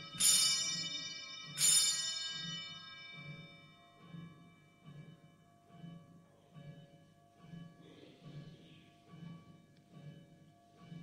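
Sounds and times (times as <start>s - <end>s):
altar bell ringing: 0.0s - 4.8s.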